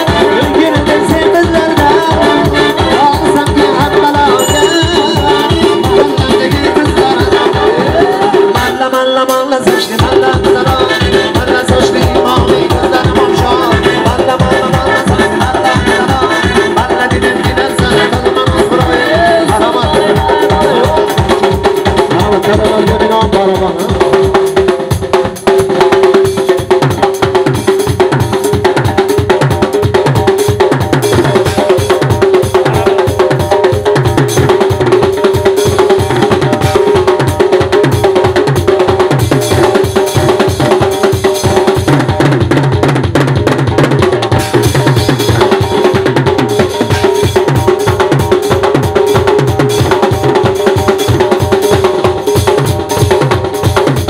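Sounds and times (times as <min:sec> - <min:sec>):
held keyboard tone: 0:00.0 - 0:08.6
frame drum: 0:00.0 - 0:09.0, 0:09.6 - 0:54.0
drum kit playing fast beat: 0:00.0 - 0:54.0.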